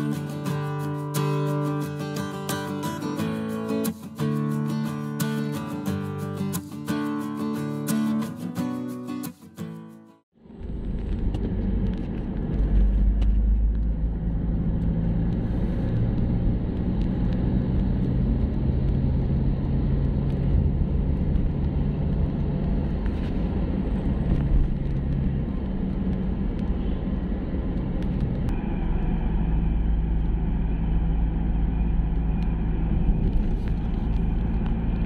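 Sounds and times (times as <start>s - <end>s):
engine and tyres rumbling on road: 10.4s - 35.0s.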